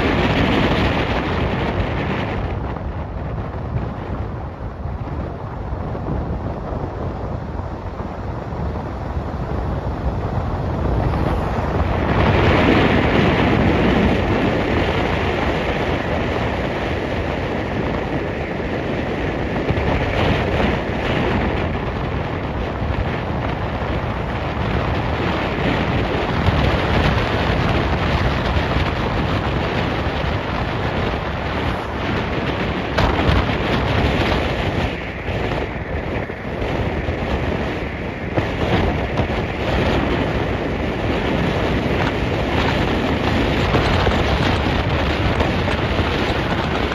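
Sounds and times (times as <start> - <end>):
vehicle rumble on road: 0.0 - 46.9
wind on microphone: 0.0 - 46.9.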